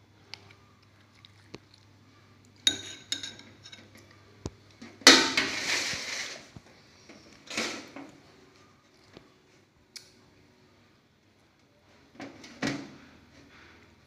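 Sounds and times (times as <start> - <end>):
metal spoon clinking on ceramic bowl: 2.7 - 3.9.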